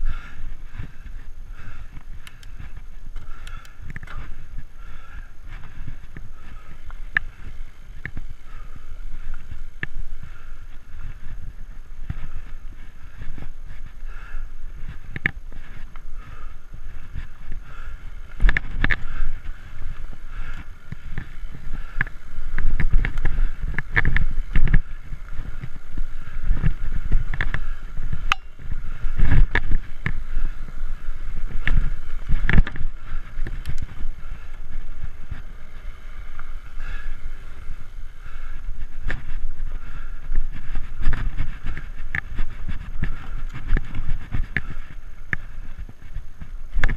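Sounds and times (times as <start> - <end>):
bike tyre noise on dirt trail: 0.0 - 46.9.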